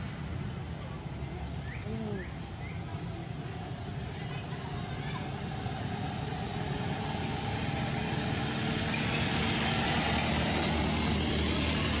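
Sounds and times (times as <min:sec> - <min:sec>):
vehicle engine running: 0:04.5 - 0:12.0.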